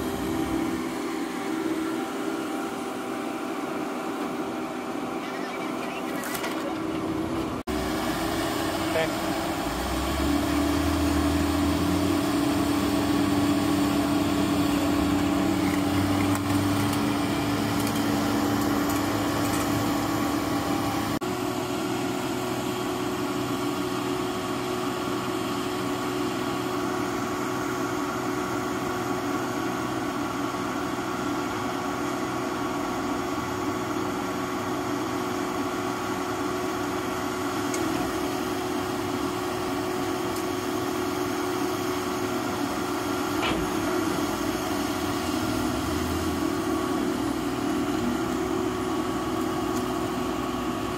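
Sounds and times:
car crusher engine and hydraulics: 0.0s - 21.2s, 37.6s - 50.9s.

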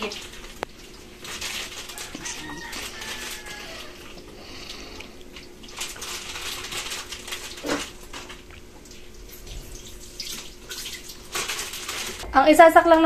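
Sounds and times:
oil sizzling in a wok: 0.0s - 4.2s
plastic bag crinkling: 0.0s - 12.2s.

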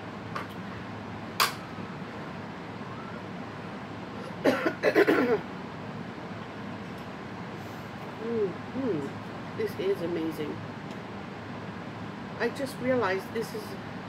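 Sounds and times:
woman coughing: 4.4s - 5.4s.

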